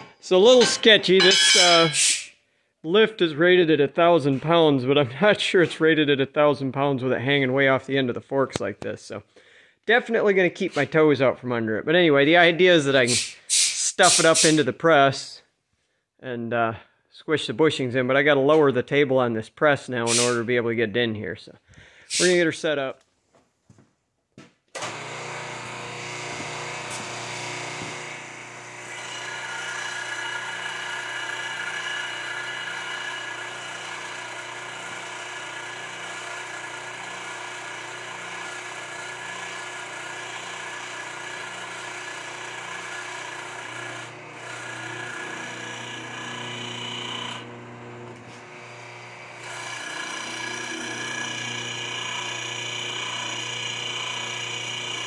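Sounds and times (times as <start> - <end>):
shop press electric motor running: 24.8 - 55.0.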